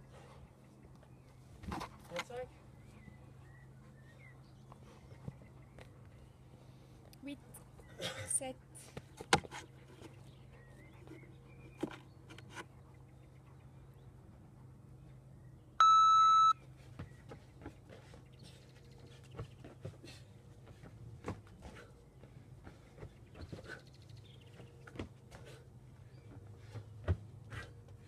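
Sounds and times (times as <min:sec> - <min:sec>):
electronic timer beep: 0:15.8 - 0:16.6.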